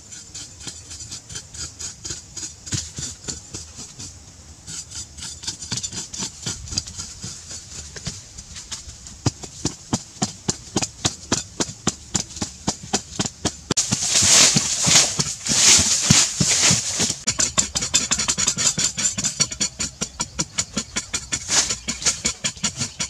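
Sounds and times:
digging tools striking ground: 0.1 - 23.0
sand scraping and flung aside: 13.7 - 17.3, 21.4 - 22.2.

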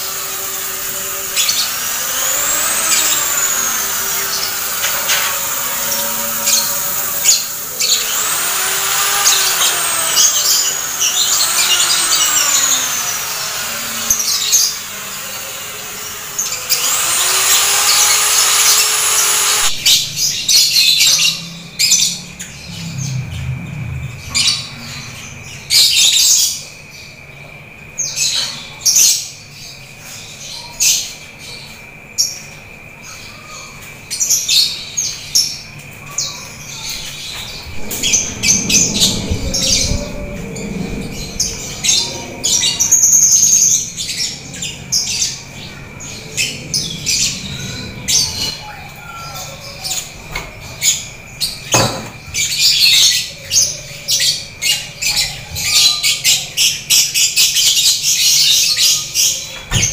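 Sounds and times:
electric drill running: 0.0 - 20.8
canaries singing: 0.0 - 59.9.

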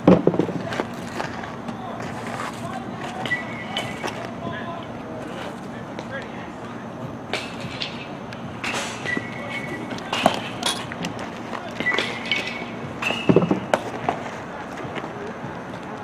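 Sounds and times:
outdoor background noise: 0.0 - 16.0
short high squeaks: 8.7 - 9.9.

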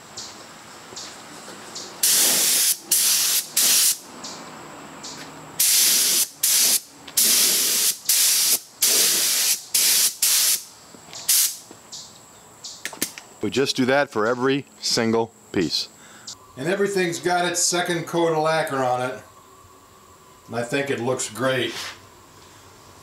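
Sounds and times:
spray gun hissing bursts: 2.0 - 4.0, 5.6 - 10.7, 11.3 - 11.6.

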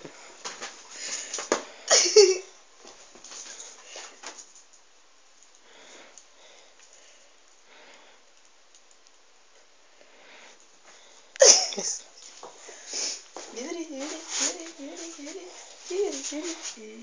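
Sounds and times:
short sniffs: 12.7 - 13.2.

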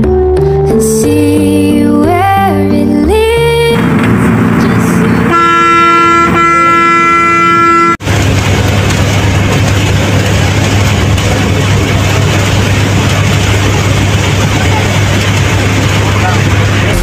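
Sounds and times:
low engine rumble: 0.0 - 17.0
bus horn blast: 3.8 - 8.0.

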